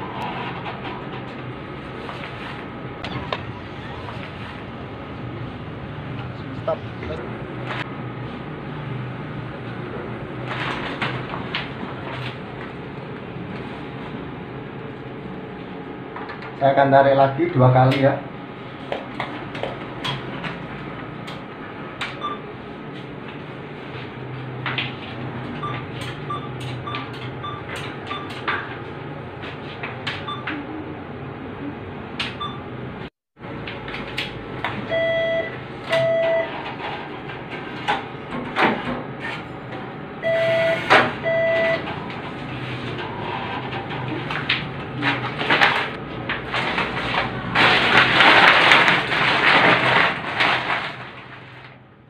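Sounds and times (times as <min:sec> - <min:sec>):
longer lower machine beeps: 0:25.6 - 0:28.4, 0:32.4 - 0:32.6, 0:34.9 - 0:36.5, 0:40.2 - 0:41.8.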